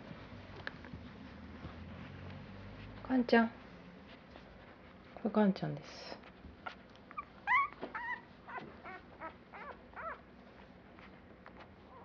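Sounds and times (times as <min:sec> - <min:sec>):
newborn puppy whimpering: 0:06.6 - 0:10.3.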